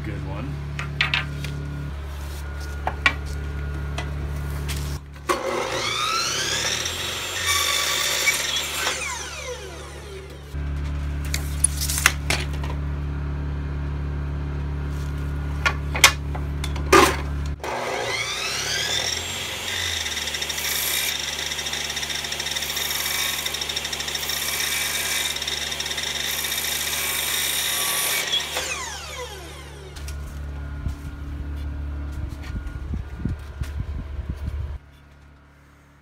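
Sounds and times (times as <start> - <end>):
low hum: 0.0 - 5.9, 28.7 - 36.0
miter saw cutting wood: 4.9 - 10.6, 17.5 - 30.4.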